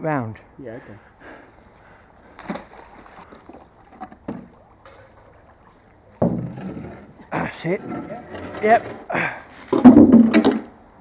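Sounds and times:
water sloshing and splashing: 2.2s - 10.0s.

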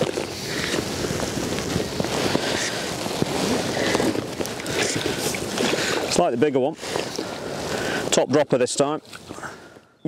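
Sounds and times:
wind on microphone: 0.0s - 8.2s.

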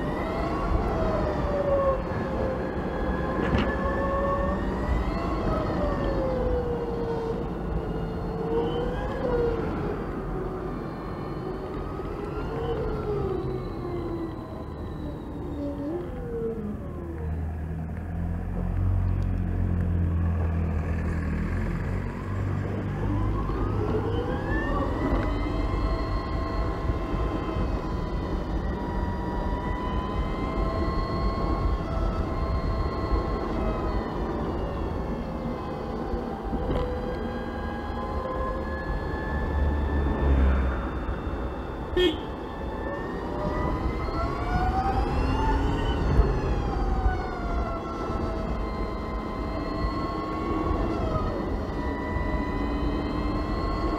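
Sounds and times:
electric scooter motor whine: 0.0s - 53.9s
low rumble of wind and road: 0.0s - 53.9s.

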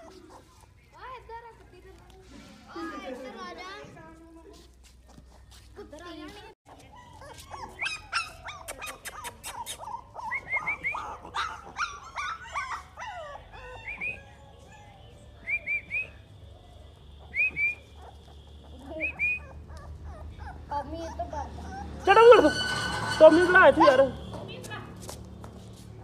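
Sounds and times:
puppy yipping and whimpering: 6.9s - 15.2s, 17.8s - 23.9s.

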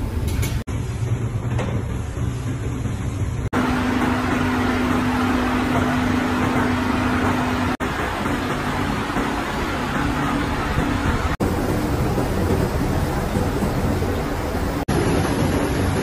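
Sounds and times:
machinery humming: 0.0s - 16.0s
machinery hiss and drone: 7.2s - 16.0s.

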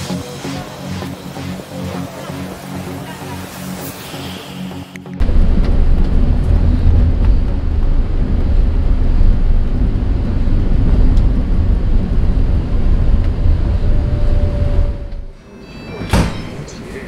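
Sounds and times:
vehicle rumbling: 0.0s - 15.4s
wind buffeting microphone: 5.2s - 15.3s.

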